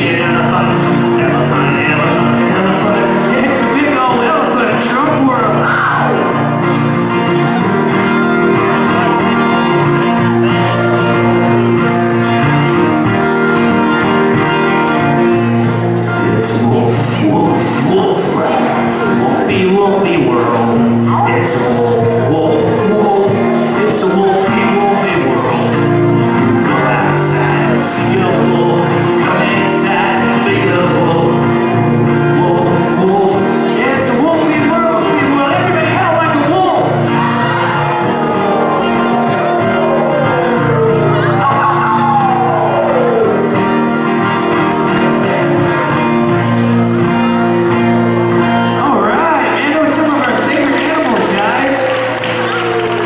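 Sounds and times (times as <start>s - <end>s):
man singing: 0.0s - 6.6s, 16.1s - 43.6s
acoustic guitars strumming: 0.0s - 53.0s.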